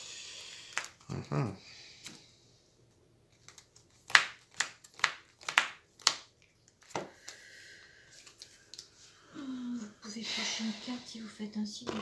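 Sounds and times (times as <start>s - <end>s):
playing cards snapping: 0.7s - 1.0s, 3.4s - 7.4s.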